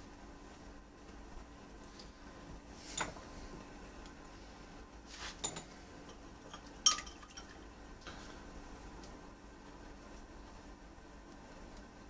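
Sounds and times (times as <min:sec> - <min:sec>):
ice clinking against glass: 0:06.5 - 0:07.6.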